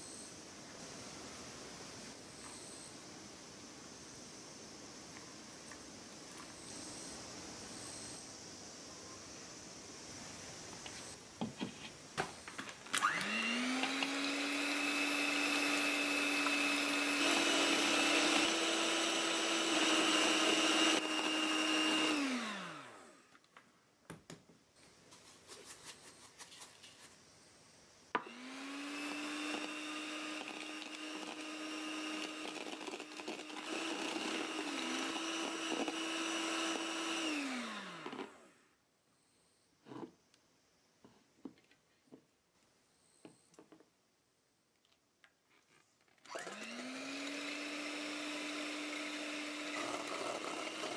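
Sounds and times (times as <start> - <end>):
electric hand mixer whining: 12.9 - 23.3, 28.2 - 38.6, 46.2 - 50.9.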